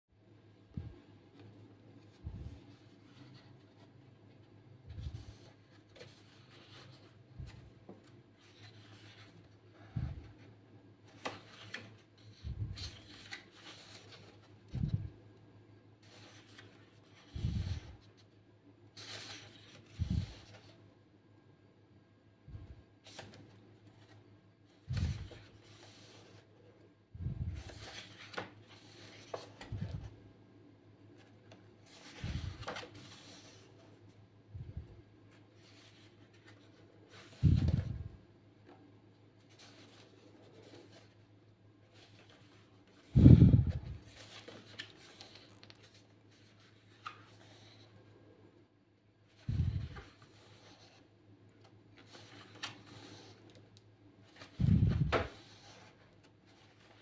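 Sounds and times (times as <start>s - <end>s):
book pages turning: 4.9s - 15.1s, 16.0s - 18.3s, 19.0s - 20.8s, 23.0s - 26.5s, 27.5s - 30.1s, 31.1s - 33.9s, 35.3s - 38.8s, 39.4s - 41.2s, 41.9s - 47.9s, 49.3s - 57.0s.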